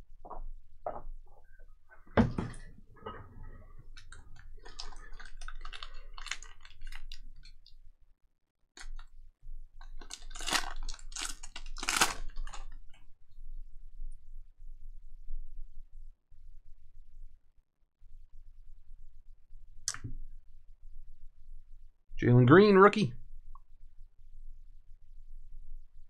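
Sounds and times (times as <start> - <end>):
thump: 2.2 - 3.2
foil wrapper crinkling: 4.0 - 7.7, 9.8 - 13.0.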